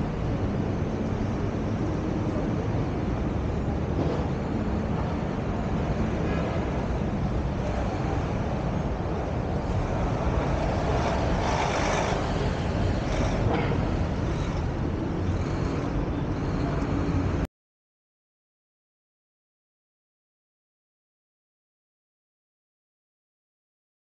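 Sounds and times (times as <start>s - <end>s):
car road noise rumble: 0.0s - 17.4s
street traffic: 0.0s - 17.5s.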